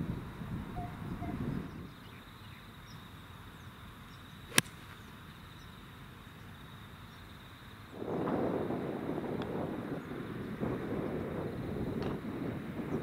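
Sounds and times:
golf club striking ball: 4.5s - 4.9s.

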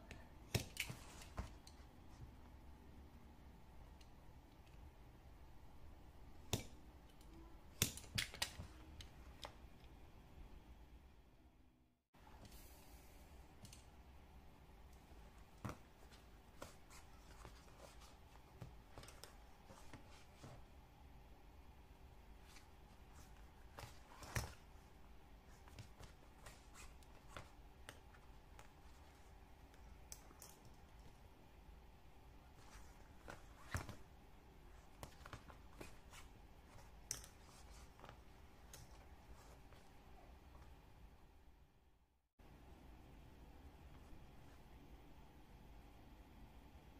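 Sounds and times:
handling of leather and needles: 15.0s - 20.7s, 22.3s - 31.3s, 32.4s - 40.8s.

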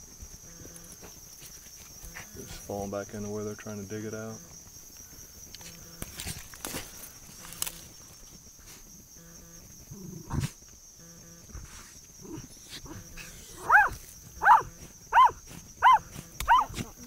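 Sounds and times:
scratching of dirt and wood: 0.0s - 9.0s, 9.7s - 17.0s
dog barking: 13.6s - 16.8s.

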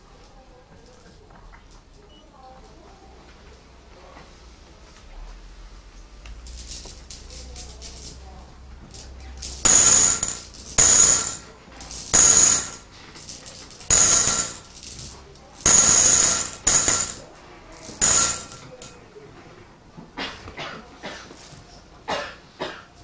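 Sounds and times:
pieces rattling in glass bowl: 8.9s - 17.2s, 17.8s - 18.9s.

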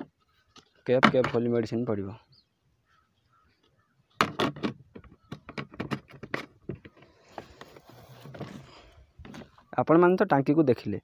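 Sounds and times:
soft rustle: 6.8s - 9.7s.

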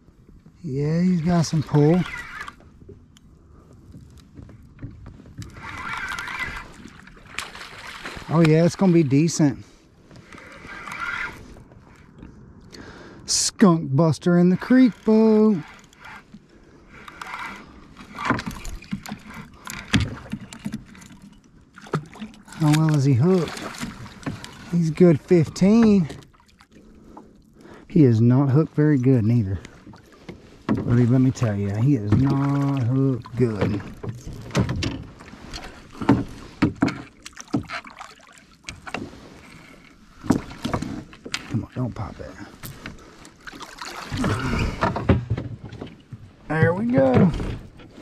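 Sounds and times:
water splashing: 0.8s - 2.6s, 5.3s - 9.6s, 16.9s - 27.8s, 28.4s - 48.0s
knocks against boat: 33.6s - 35.2s, 36.0s - 37.8s, 44.1s - 47.9s
fish splashing in water: 43.3s - 44.9s.

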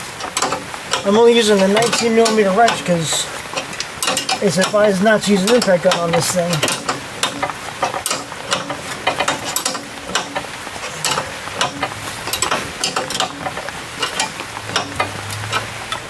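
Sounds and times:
steady hiss: 0.0s - 16.0s
spring compressor metallic clicks: 3.5s - 4.8s, 5.4s - 16.0s.

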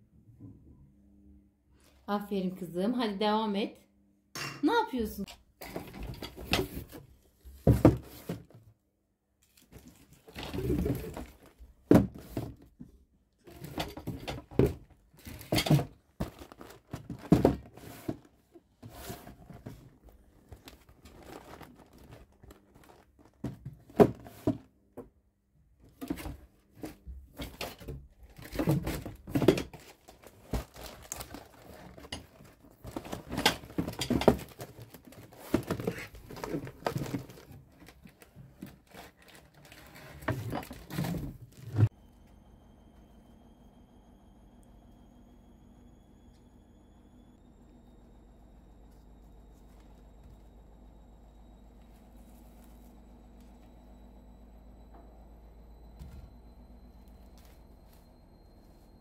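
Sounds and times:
cardboard boxes knocking and sliding: 5.6s - 8.7s, 10.3s - 12.7s, 13.5s - 20.0s, 20.6s - 24.7s, 26.0s - 37.6s.

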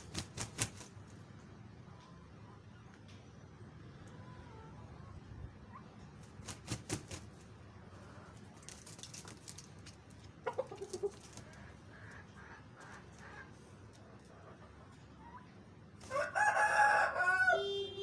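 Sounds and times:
chickens clucking: 3.8s - 6.4s, 7.8s - 17.0s.

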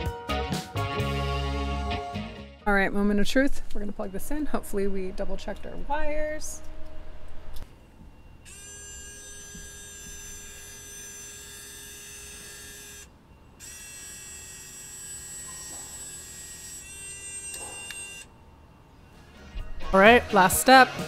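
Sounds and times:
electric winch motor whining: 8.2s - 18.8s.

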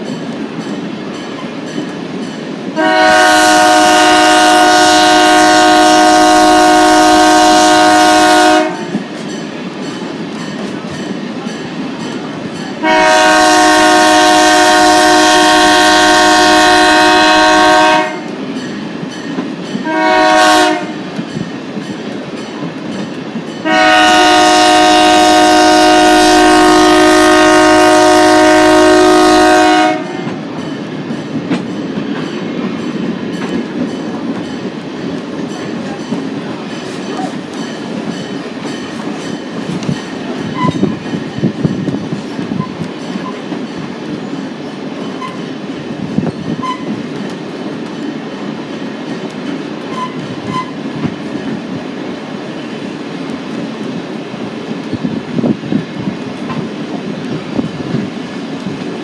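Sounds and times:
train rumbling on rails: 0.0s - 59.0s
locomotive horn blasts: 2.8s - 9.0s, 12.8s - 18.4s, 19.8s - 21.1s, 23.6s - 30.4s.

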